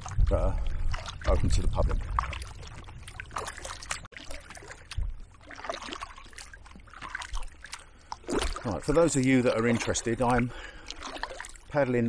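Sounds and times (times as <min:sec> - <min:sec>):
wind rumble on microphone: 0:00.0 - 0:04.1, 0:04.8 - 0:05.4
paddle splashing in water: 0:00.0 - 0:12.0
water trickling off paddle: 0:00.0 - 0:12.0.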